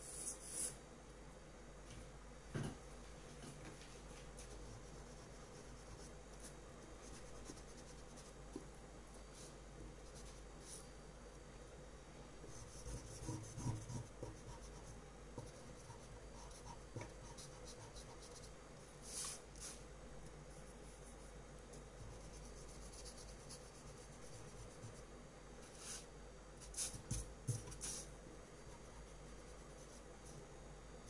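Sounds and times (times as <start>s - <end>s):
pencil sketching on paper: 12.5s - 19.4s.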